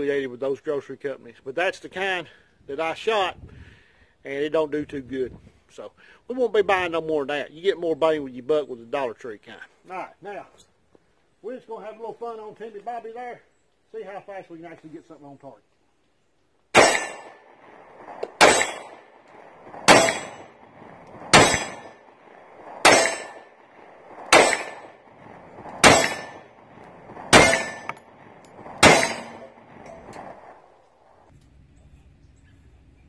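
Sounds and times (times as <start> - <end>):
pistol shots with ringing tail: 16.7 - 30.6.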